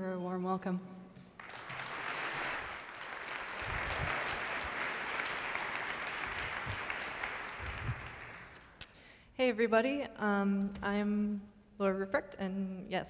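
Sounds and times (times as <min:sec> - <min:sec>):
audience applauding: 0:01.4 - 0:08.8.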